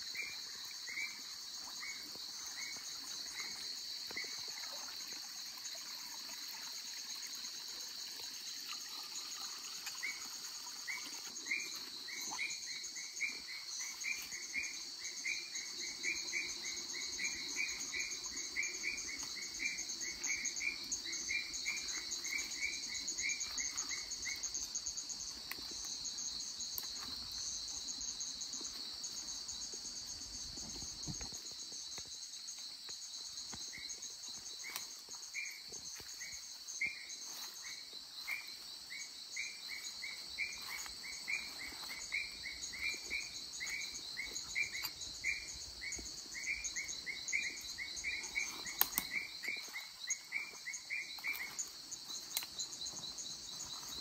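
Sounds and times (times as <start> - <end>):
insect chorus trilling: 0.0 - 54.0
faint clicks: 48.8 - 49.2.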